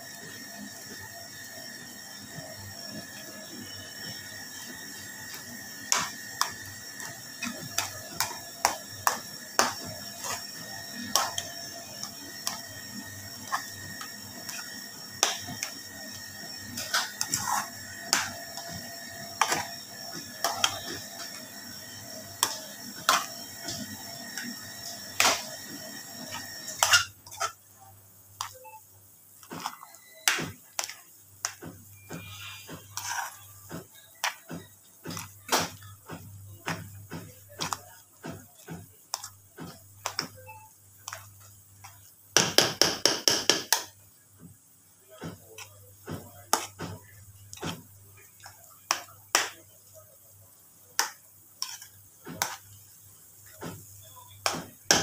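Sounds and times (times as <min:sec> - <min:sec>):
steady hum: 0:00.0 - 0:44.4
metal spoon scraping a pan: 0:04.6 - 0:15.9, 0:16.7 - 0:27.6, 0:30.8 - 0:33.6, 0:51.6 - 0:52.8.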